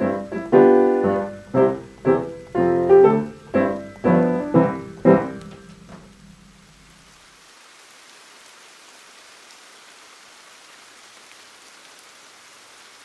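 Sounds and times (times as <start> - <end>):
piano notes: 0.0 - 7.2
faint steady rain: 0.0 - 13.0.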